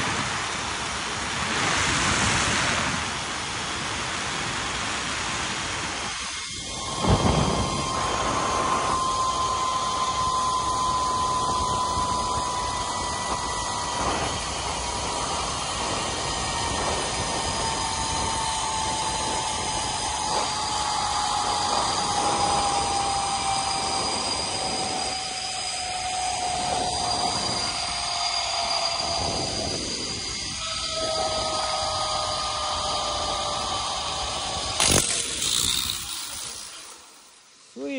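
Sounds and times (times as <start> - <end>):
wind on microphone: 0.0 - 37.0
zip line wheels whining on cable: 0.0 - 37.9.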